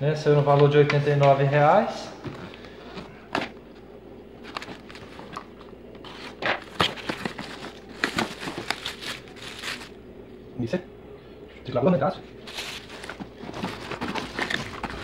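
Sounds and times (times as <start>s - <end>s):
plastic wrapping crinkling: 4.4s - 10.0s, 12.4s - 15.0s
cardboard box being handled: 6.0s - 9.9s, 12.5s - 15.0s.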